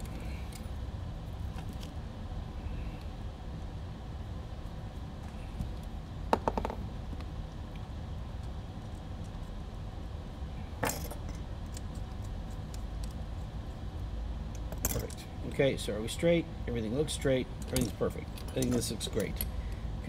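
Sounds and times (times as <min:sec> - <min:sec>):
steady low hum: 0:00.0 - 0:20.0
metal tools clinking: 0:17.6 - 0:19.5.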